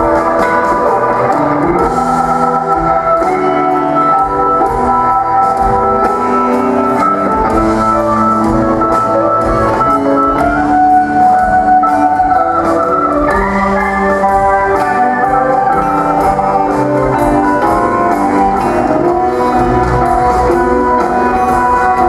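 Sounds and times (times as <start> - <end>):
live rock band playing blues: 0.0 - 22.0.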